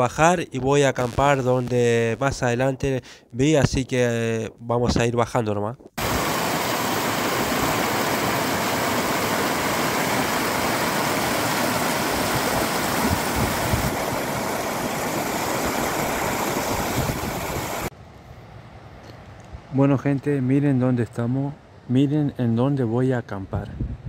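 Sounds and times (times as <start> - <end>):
stream splashing over rocks: 6.0 - 17.9.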